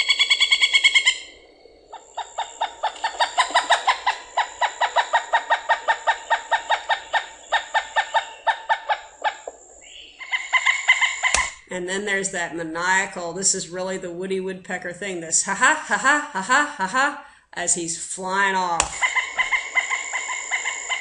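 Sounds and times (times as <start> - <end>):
woodpecker laughing call: 0.0 - 11.7, 18.8 - 21.0.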